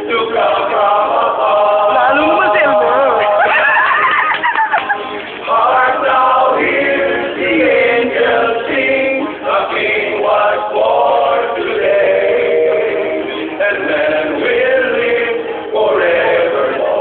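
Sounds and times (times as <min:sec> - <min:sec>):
male choir singing: 0:00.0 - 0:03.7, 0:04.9 - 0:17.0.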